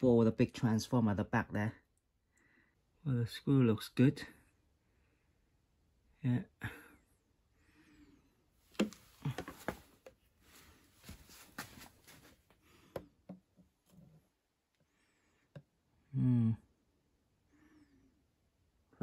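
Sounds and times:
rustling: 0:08.7 - 0:12.6.

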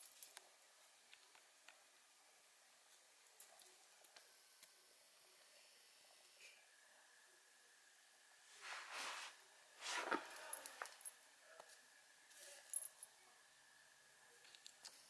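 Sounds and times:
soft rustling swishes: 0:08.5 - 0:10.7.

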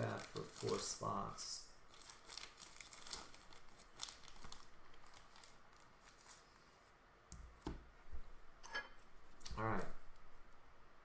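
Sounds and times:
plastic rustling: 0:00.0 - 0:07.0.

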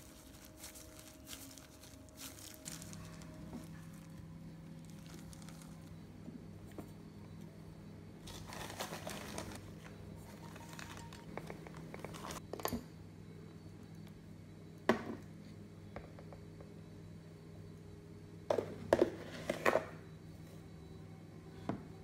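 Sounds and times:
packaging crinkling and rustling: 0:00.0 - 0:06.0, 0:08.2 - 0:11.3
steady low hum: 0:00.0 - 0:22.0.

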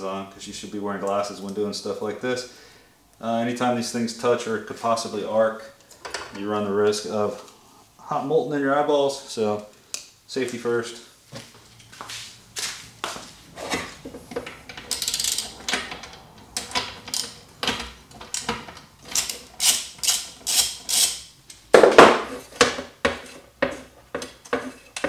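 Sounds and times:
hand tool clicking on metal: 0:14.7 - 0:21.6.

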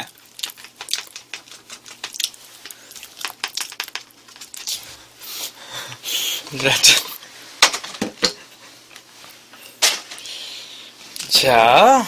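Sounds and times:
foil pouch crinkling: 0:00.0 - 0:04.9.

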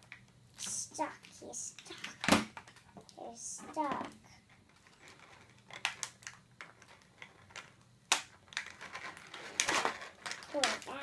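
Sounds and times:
plastic packaging clicking: 0:05.4 - 0:10.9.

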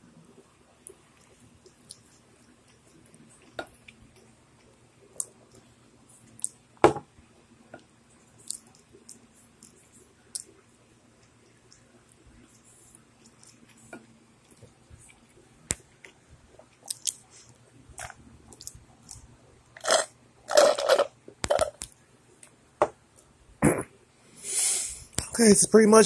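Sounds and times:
wet mouth clicks while chewing: 0:08.4 - 0:10.6, 0:14.5 - 0:17.3, 0:18.0 - 0:19.2.

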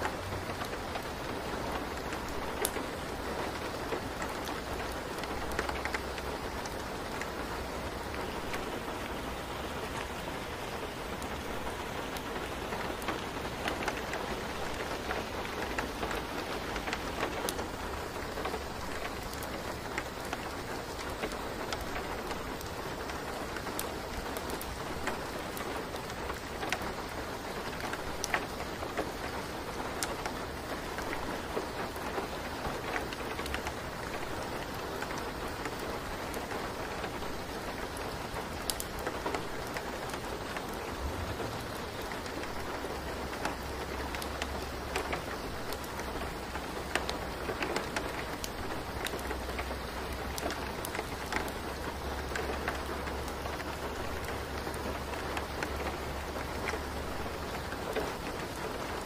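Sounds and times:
rain-like hiss: 0:00.0 - 0:59.0.

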